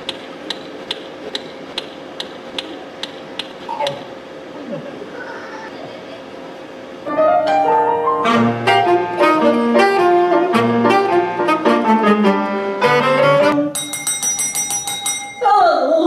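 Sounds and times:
piano: 0:07.0 - 0:13.8
saxophone phrases: 0:08.0 - 0:13.6.

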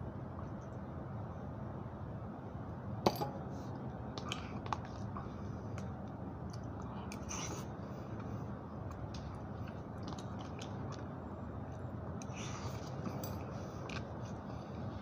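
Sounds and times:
steady low hum: 0:00.0 - 0:15.0
chewing: 0:08.2 - 0:11.1.

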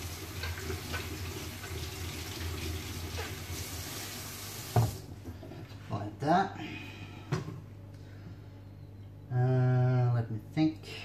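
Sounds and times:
apple being washed under water: 0:00.0 - 0:05.0
tap running into a steel sink: 0:04.7 - 0:05.0.

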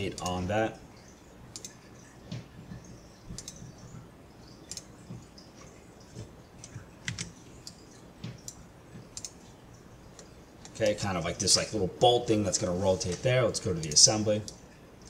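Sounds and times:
computer mouse clicks: 0:01.5 - 0:03.9, 0:04.6 - 0:05.2, 0:06.1 - 0:09.5
keyboard clicks: 0:01.5 - 0:04.0, 0:04.6 - 0:05.2, 0:06.1 - 0:09.5.

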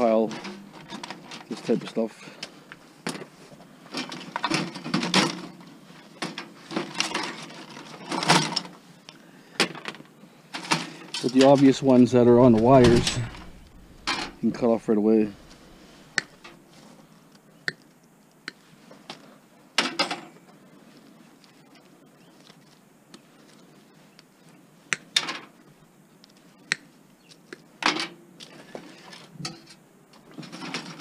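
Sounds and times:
clicks and rattling: 0:10.6 - 0:16.6.

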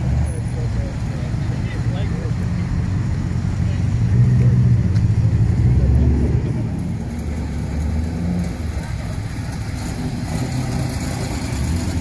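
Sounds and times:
car engine rumbling: 0:00.0 - 0:12.0.

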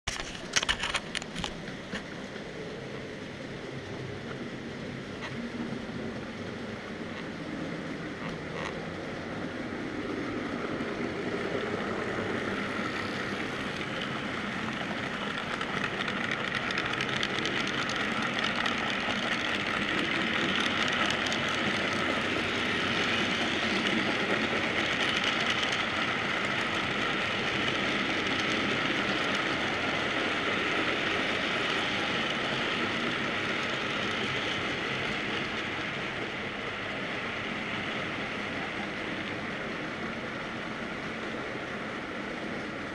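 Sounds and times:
model train wheels clattering on rails: 0:00.1 - 0:02.5, 0:11.6 - 0:36.3.

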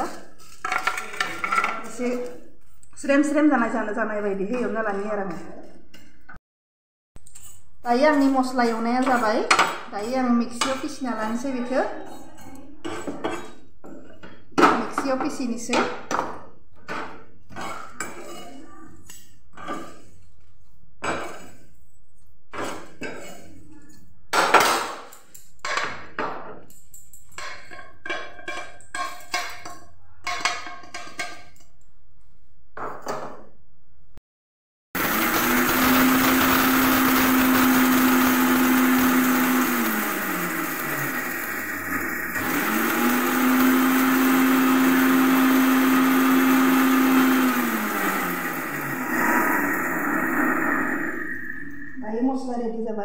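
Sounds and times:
mixer grinder whining: 0:35.0 - 0:52.1.

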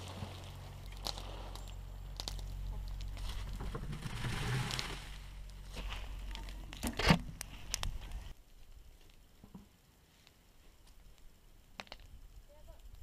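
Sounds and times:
steady low hum: 0:00.0 - 0:13.0
plastic tarp crinkling: 0:02.9 - 0:06.8.

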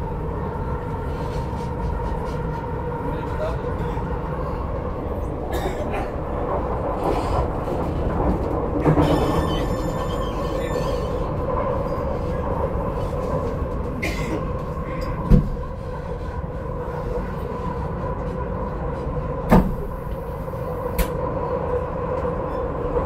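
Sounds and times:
steady train hum: 0:00.0 - 0:23.0
train wheels rumbling on rails: 0:00.0 - 0:23.0
thump: 0:15.3 - 0:15.6, 0:19.5 - 0:19.8.

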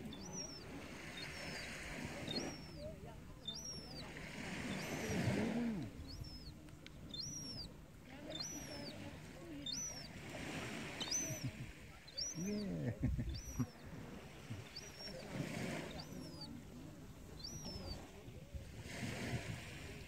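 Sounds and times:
gull begging calls: 0:00.0 - 0:06.5, 0:07.1 - 0:09.0, 0:09.7 - 0:10.1, 0:11.0 - 0:16.6.

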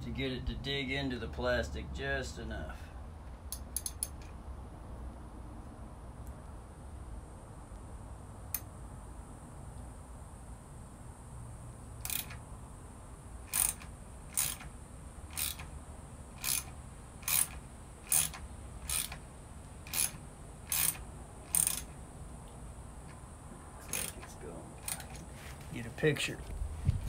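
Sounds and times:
ratchet wrench clicking: 0:03.5 - 0:04.3, 0:12.0 - 0:12.4, 0:13.5 - 0:14.7, 0:15.3 - 0:15.7, 0:16.4 - 0:19.2, 0:19.8 - 0:22.0, 0:23.9 - 0:25.2.

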